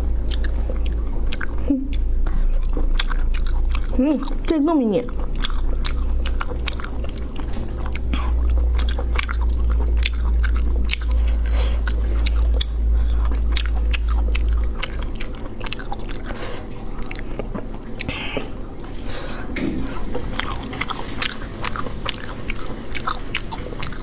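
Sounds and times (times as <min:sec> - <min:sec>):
steady low hum: 0:00.0 - 0:24.0
wet lip smacks and chewing: 0:00.2 - 0:04.5, 0:05.1 - 0:19.0.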